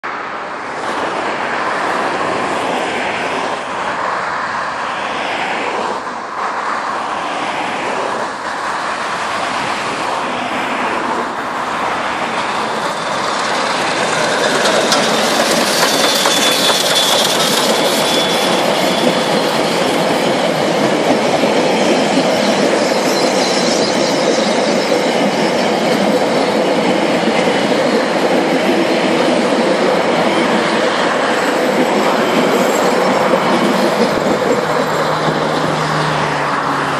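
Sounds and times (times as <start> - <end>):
carriages rolling past: 7.2 - 36.9
wheels squealing: 11.2 - 36.9
steam locomotive chuffing: 11.3 - 36.9.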